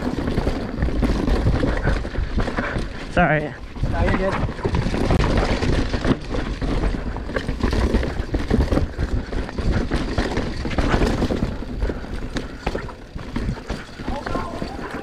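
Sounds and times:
bike knocking and rattling: 0:00.0 - 0:15.0
tyres rumbling on dirt: 0:00.0 - 0:15.0.

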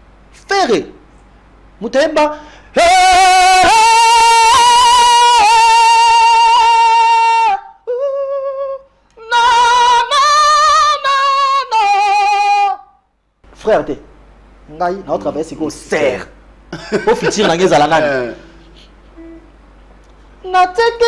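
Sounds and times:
man singing a cappella: 0:02.7 - 0:13.0.

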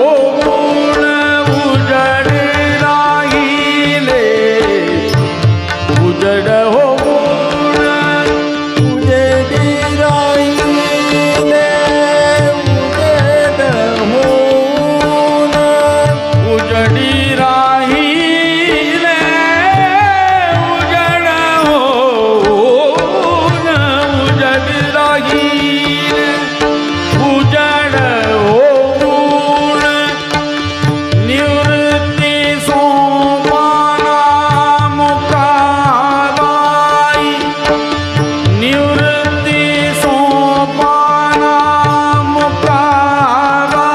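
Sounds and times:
man singing devotional song: 0:00.0 - 0:43.9
tabla strokes: 0:00.0 - 0:43.9.

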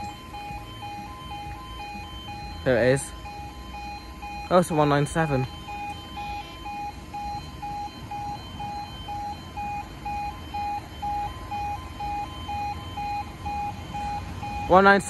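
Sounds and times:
level crossing alarm beeping: 0:00.0 - 0:15.0.

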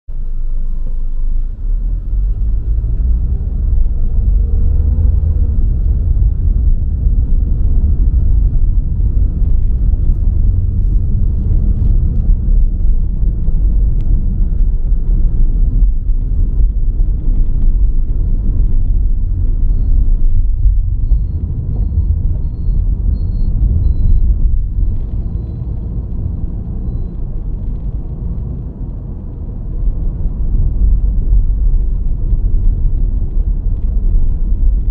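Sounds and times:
car engine rumble: 0:00.1 - 0:34.9
road noise: 0:00.1 - 0:34.9.

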